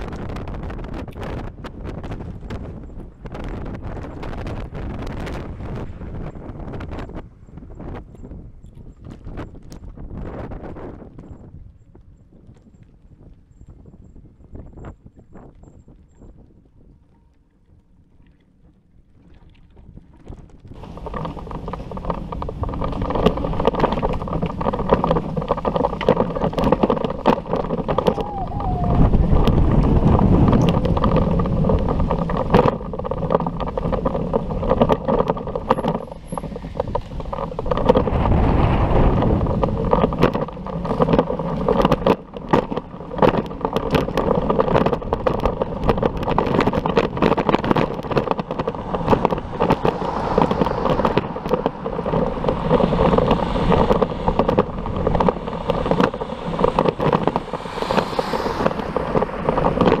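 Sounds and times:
road rumble: 0.0s - 10.0s, 20.3s - 60.0s
wind on microphone: 0.0s - 60.0s
small knocks and rattles: 19.3s - 28.3s, 29.3s - 38.2s, 39.2s - 60.0s.

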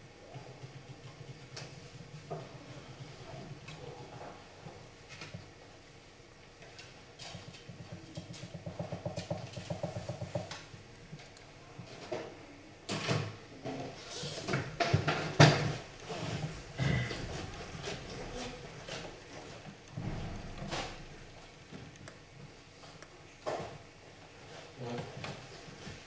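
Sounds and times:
chess pieces knocking on wooden board: 7.9s - 10.5s.

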